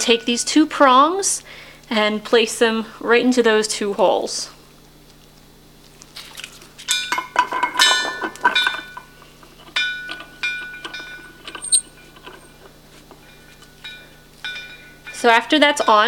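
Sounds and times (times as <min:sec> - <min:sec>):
metal clinks and knocks: 0:06.8 - 0:16.0.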